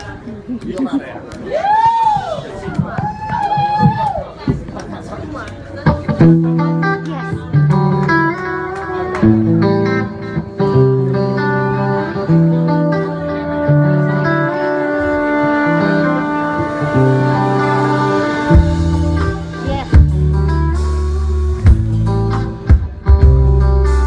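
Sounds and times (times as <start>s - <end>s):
bass: 0.0s - 24.0s
electric guitar: 5.7s - 24.0s
horns playing: 13.0s - 20.8s.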